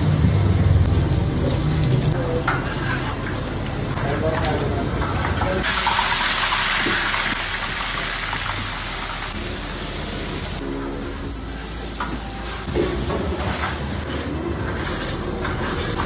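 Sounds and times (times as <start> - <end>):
paste sizzling in hot oil: 5.6 - 10.6
ladle stirring in pot: 12.7 - 16.0.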